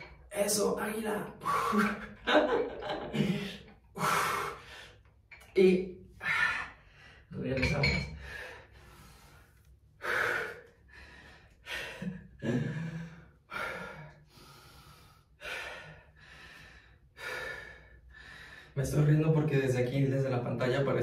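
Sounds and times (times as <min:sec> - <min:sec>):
person breathing hard: 0:03.1 - 0:05.1, 0:08.1 - 0:18.8.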